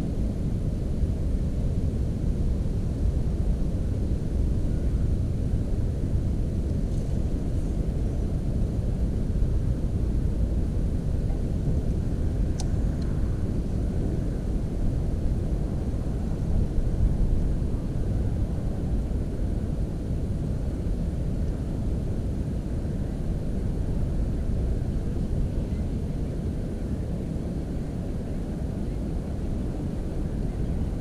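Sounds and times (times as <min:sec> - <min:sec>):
faint click: 0:12.6 - 0:13.1.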